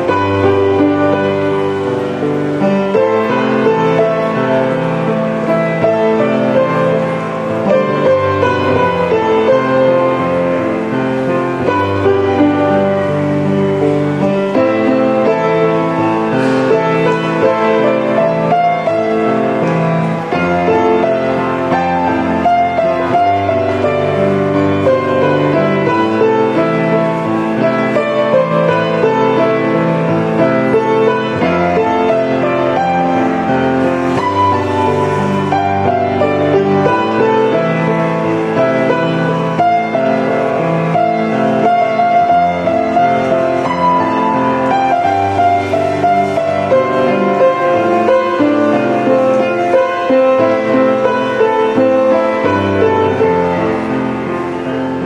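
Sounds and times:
piano background music: 0.0 - 55.0.

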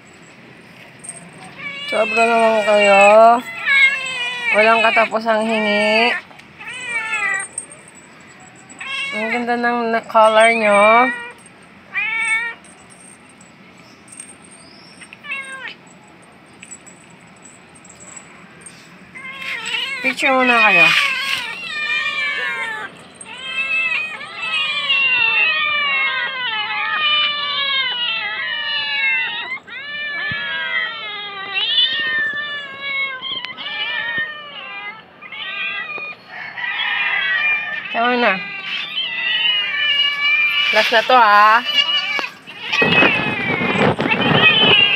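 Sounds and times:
cat meowing: 1.5 - 7.7, 8.7 - 9.5, 10.2 - 12.6, 19.2 - 44.9.

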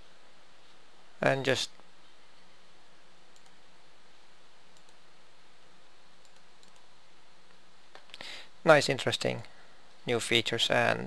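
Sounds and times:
microphone hiss: 0.0 - 11.0
computer mouse clicks: 3.3 - 3.6, 4.8 - 5.0, 6.2 - 6.9.

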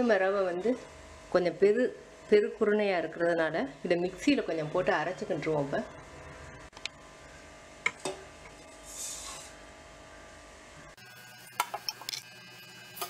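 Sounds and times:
metal jar clinking: 11.5 - 12.3.

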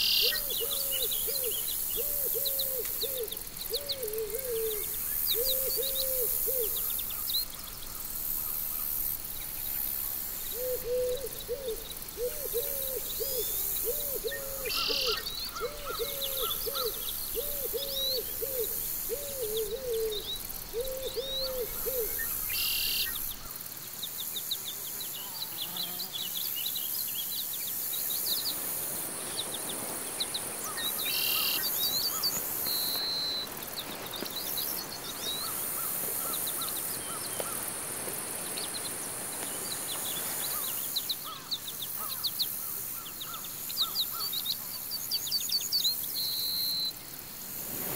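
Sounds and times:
low hooting bird call: 0.0 - 7.0, 10.5 - 23.2
high insect buzz: 0.0 - 43.9, 46.7 - 47.9.

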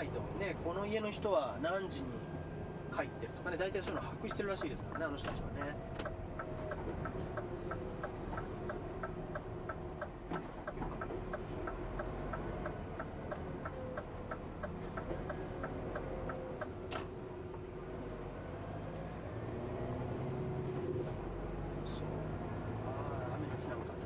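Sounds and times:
low truck cab hum: 0.0 - 24.0
turn signal ticking: 3.7 - 17.7.

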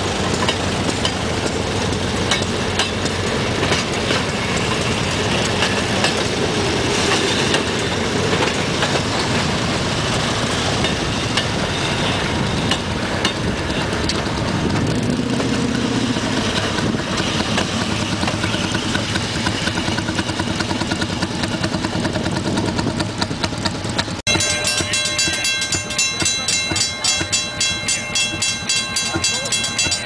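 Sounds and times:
small engines running: 13.5 - 30.0.

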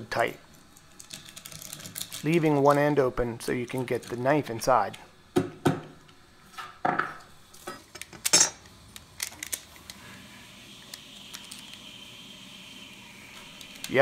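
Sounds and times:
metal foil crinkling and clinking: 0.9 - 2.8.

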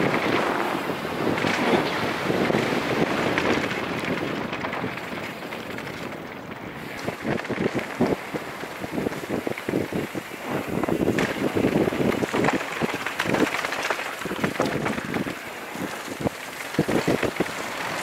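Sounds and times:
tyres rumbling on dirt: 0.0 - 18.0
wind buffeting microphone: 0.0 - 18.0
bike rattling knocks: 6.8 - 18.0.

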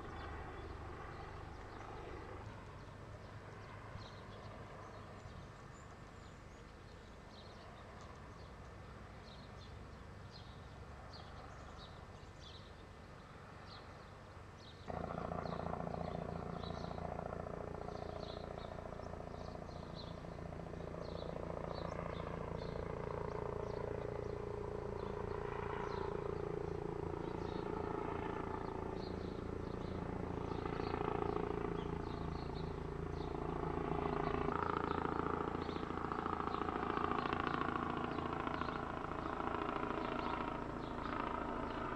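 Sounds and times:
helicopter rotor beating: 0.0 - 3.9, 14.9 - 41.9.

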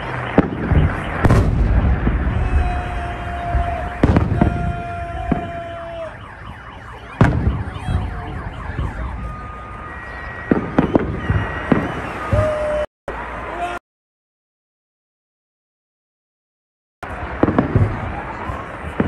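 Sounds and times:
fireworks bursting: 0.0 - 12.7, 17.0 - 19.0.

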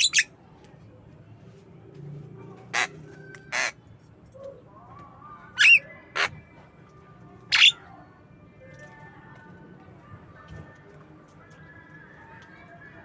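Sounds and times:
bird giving harsh calls: 0.0 - 0.3, 7.5 - 7.8.

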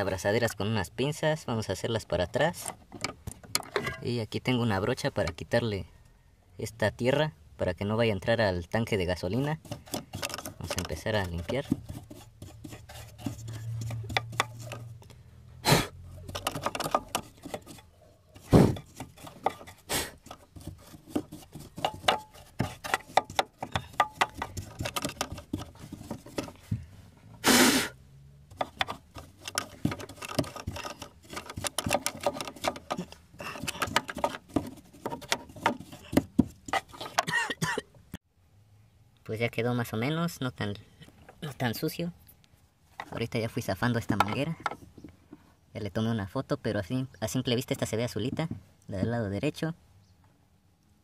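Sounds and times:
paintbrush scrubbing dirt: 9.1 - 15.0, 16.1 - 26.7, 28.5 - 37.3.

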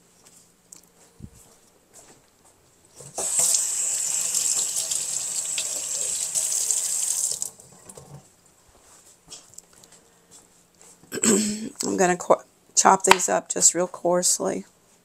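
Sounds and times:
tap running into sink: 3.0 - 8.2.

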